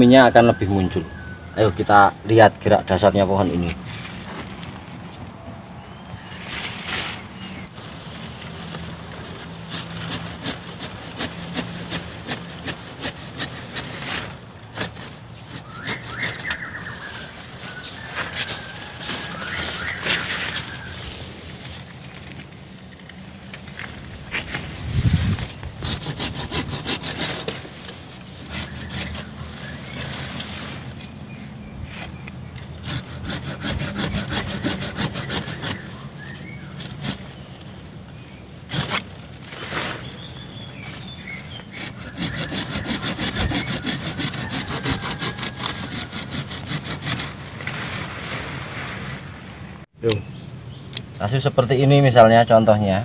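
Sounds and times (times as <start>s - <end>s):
hand saw cutting branches: 6.4s - 20.9s, 23.8s - 31.1s, 31.9s - 37.7s, 38.6s - 49.3s.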